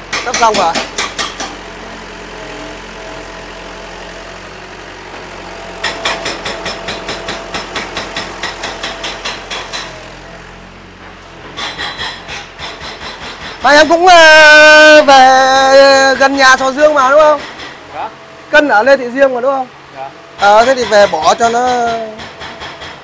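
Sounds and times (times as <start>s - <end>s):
hammer striking metal scrap: 0.1s - 1.6s, 5.8s - 10.1s, 11.4s - 13.7s, 17.3s - 17.8s, 20.4s - 23.0s
engine hum: 0.8s - 14.0s.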